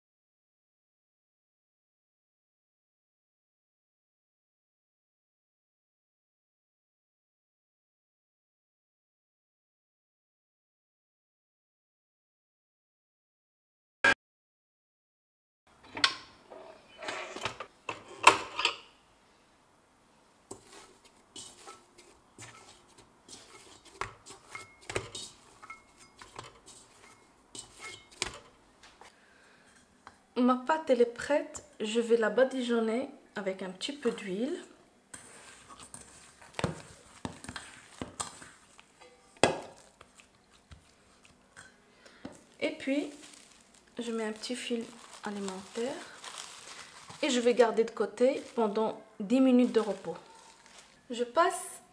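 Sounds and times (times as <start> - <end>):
dough rubbing and knocking in bowl: 20.5 - 28.6, 35.2 - 41.4, 42.3 - 51.1.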